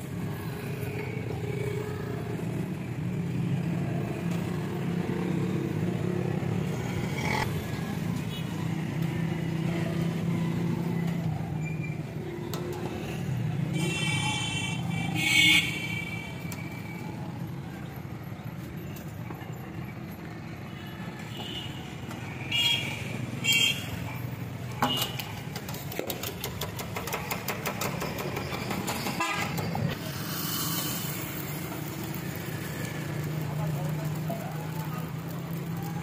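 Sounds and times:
vehicle horns honking: 13.7 - 16.4, 29.1 - 29.9.

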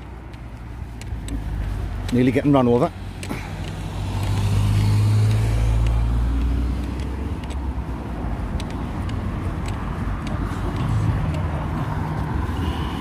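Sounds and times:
car driving past: 3.3 - 7.8.

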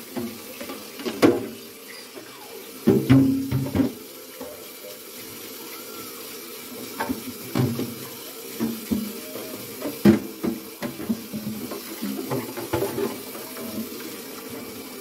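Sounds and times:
tap running into sink: 0.0 - 4.8, 6.8 - 14.9
plastic knocking against sink: 2.9 - 4.0, 9.8 - 13.2.

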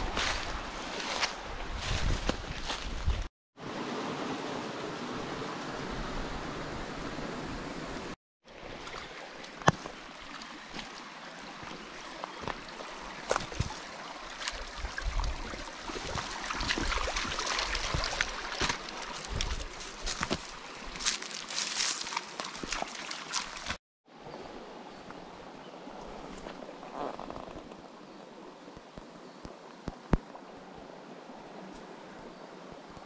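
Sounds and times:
creek running over stones: 0.0 - 23.8
dog wading and splashing: 21.8 - 23.8.

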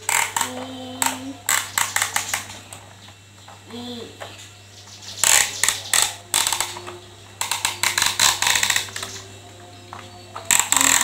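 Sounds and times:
plastic toy parts clicking: 0.0 - 2.5, 5.2 - 9.2, 10.4 - 11.0.

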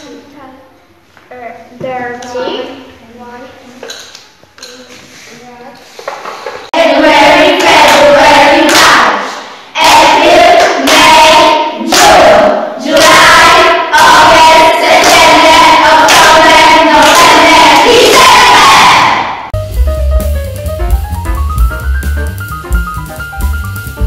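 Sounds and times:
children singing: 6.8 - 19.3.

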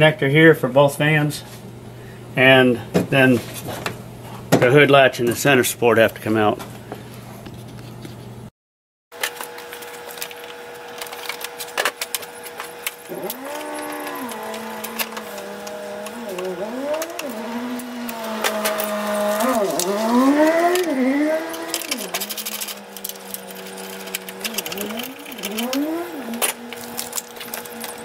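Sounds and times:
cordless power tool whining: 9.2 - 28.0
tools clicking on metal: 12.8 - 28.0.

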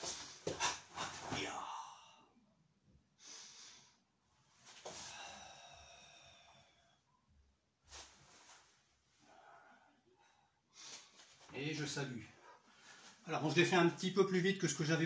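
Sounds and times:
faint controlled breathing: 3.2 - 11.5, 12.2 - 13.3.

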